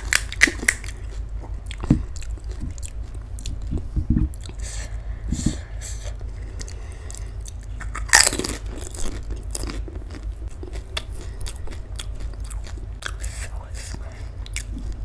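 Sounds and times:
crisp shell cracking: 0.0s - 1.0s
crunching bite: 0.0s - 3.7s, 7.2s - 13.4s
crisp chewing crunches: 0.0s - 3.8s, 6.2s - 15.0s.

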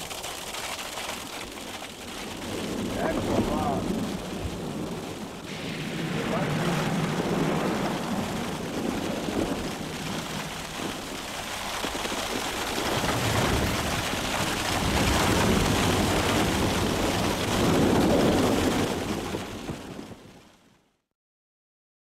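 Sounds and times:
ash and rocks falling patter: 0.0s - 20.3s
deep rumble: 1.9s - 20.2s.

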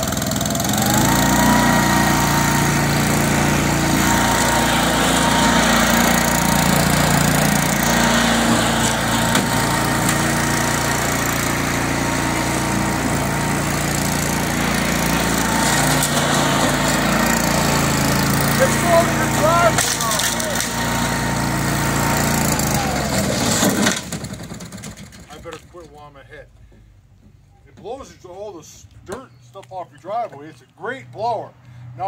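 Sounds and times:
lawn mower engine drone with whine: 0.0s - 25.3s.

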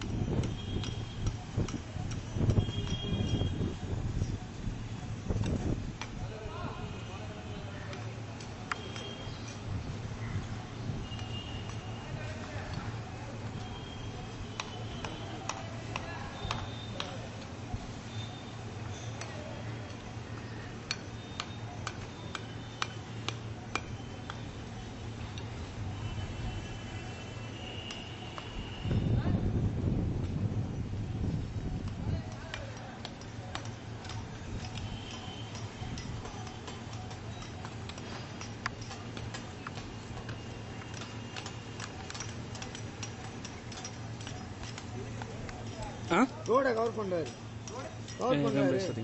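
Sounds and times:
sharp clicks and taps: 31.7s - 48.3s.

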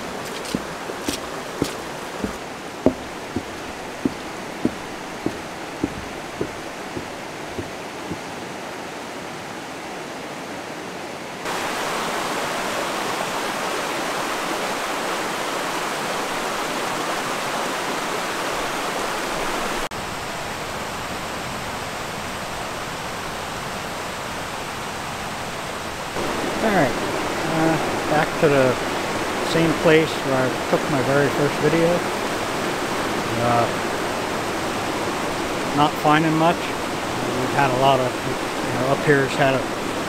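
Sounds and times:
sharp taps: 0.0s - 8.2s
waterfall rushing: 0.0s - 9.4s, 11.5s - 19.9s, 26.2s - 40.0s.

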